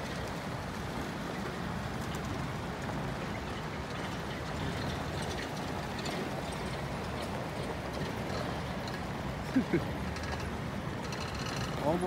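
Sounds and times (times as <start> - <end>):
truck engines and tyres rumbling: 0.0 - 12.0.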